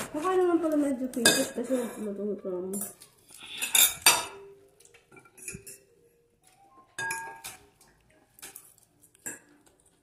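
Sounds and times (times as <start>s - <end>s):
fork clinking on ceramic plate: 5.1s - 6.0s, 7.0s - 7.7s.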